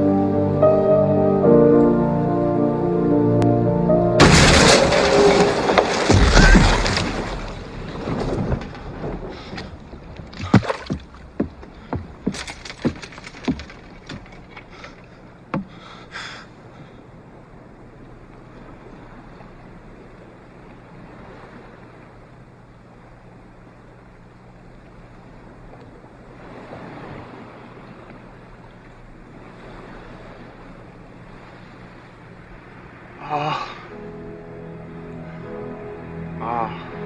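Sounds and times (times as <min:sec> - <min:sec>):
wind: 0:00.0 - 0:37.0
boat crashing into wall: 0:04.2 - 0:14.6
boat knocks and creaks: 0:04.2 - 0:16.1
water lapping: 0:04.3 - 0:37.0.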